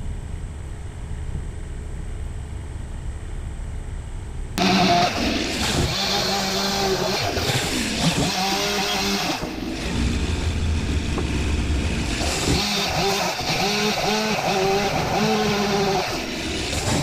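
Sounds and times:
chainsaw revving and idling: 4.6s - 17.0s.

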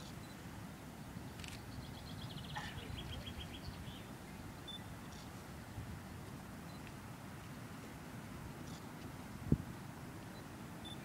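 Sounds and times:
wind rumble on microphone: 9.3s - 9.9s.

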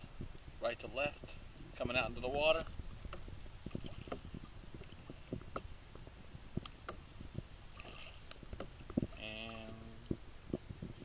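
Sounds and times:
soft knocks and clicks: 6.6s - 7.0s.

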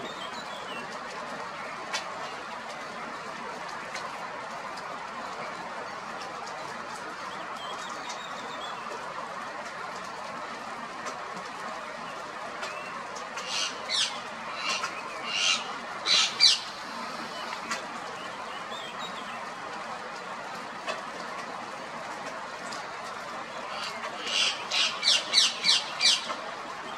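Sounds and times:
steady background noise: 0.0s - 26.9s
parakeets squawking: 13.4s - 17.5s, 23.6s - 26.4s.

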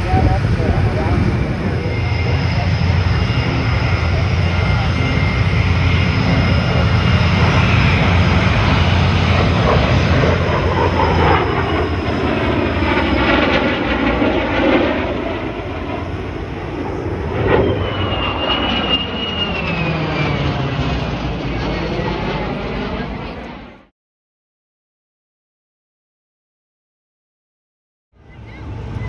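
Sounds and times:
jet engine roaring past: 0.0s - 23.9s, 28.2s - 29.0s
thin high whistle: 17.6s - 19.7s.

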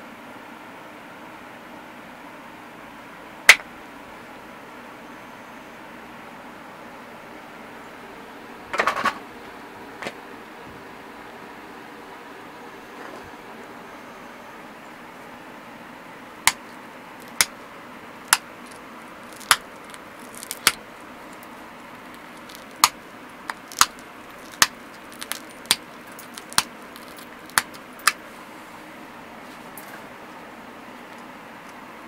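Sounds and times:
stone flakes snapping off: 17.2s - 17.6s, 18.3s - 28.2s.

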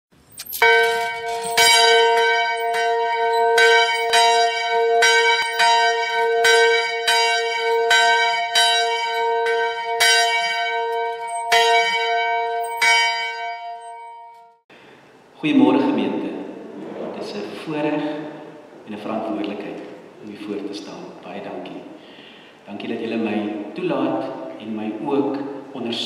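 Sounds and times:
church bell ringing: 0.6s - 14.6s.

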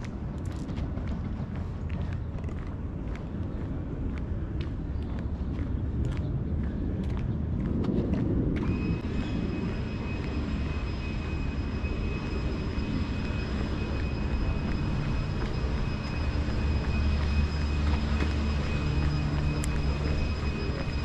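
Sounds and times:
low engine rumble: 0.0s - 21.0s
faint high whine: 8.6s - 21.0s.

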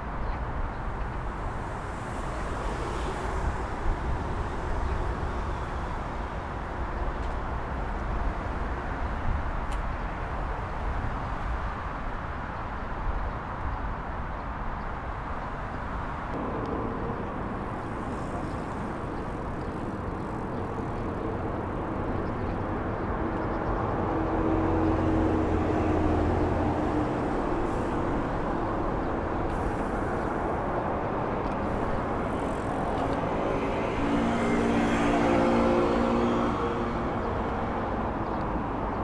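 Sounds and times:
road traffic: 0.0s - 39.0s
vehicle droning hum: 16.2s - 39.0s.

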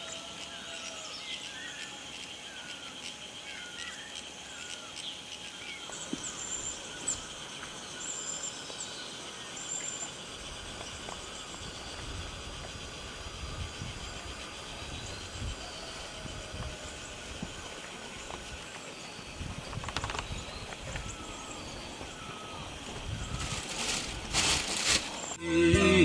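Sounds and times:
insects buzzing: 0.0s - 25.4s
birds chirping and whistling: 13.3s - 25.4s.

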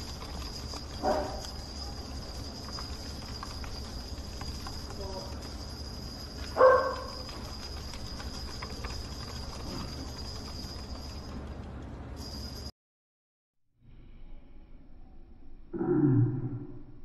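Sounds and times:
steady low hum: 0.0s - 12.7s.

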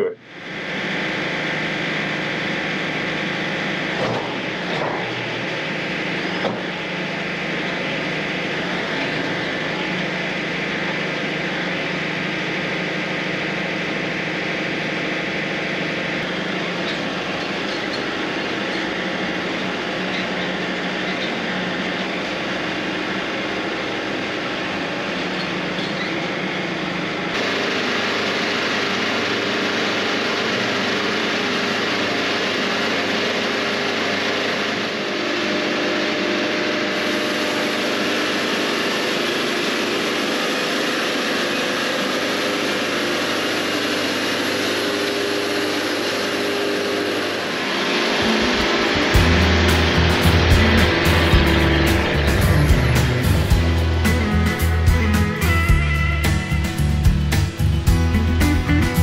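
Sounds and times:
sawmill engine running: 0.0s - 59.0s
steady tones: 47.2s - 59.0s.

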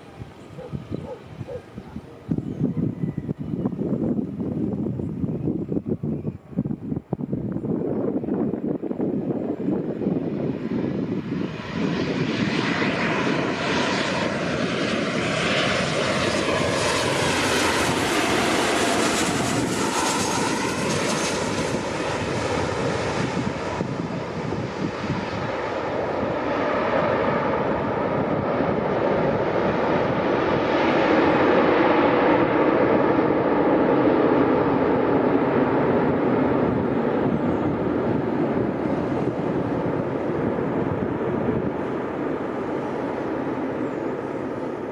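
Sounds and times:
jet engines roaring: 6.6s - 44.9s.

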